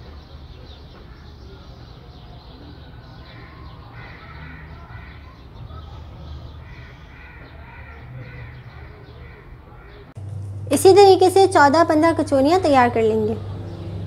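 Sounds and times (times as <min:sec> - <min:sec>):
birds calling: 0:00.0 - 0:14.0
low steady hum: 0:10.1 - 0:14.0.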